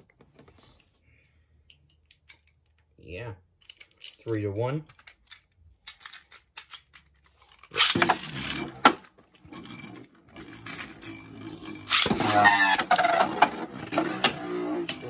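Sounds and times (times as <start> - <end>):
spinning top scraping: 7.7 - 8.9, 9.6 - 15.0
spinning top launcher ripping: 7.7 - 9.0, 11.8 - 14.0
gliding whir: 9.6 - 15.0.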